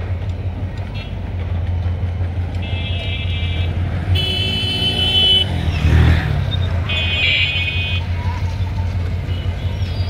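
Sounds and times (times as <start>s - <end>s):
locomotive horn blasts: 2.6s - 5.6s.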